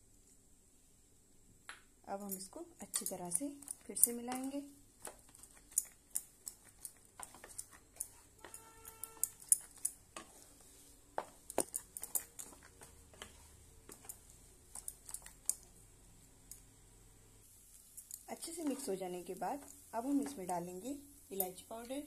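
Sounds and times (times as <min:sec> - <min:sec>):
spatula scraping a pan: 0:05.1 - 0:11.0, 0:11.6 - 0:14.9.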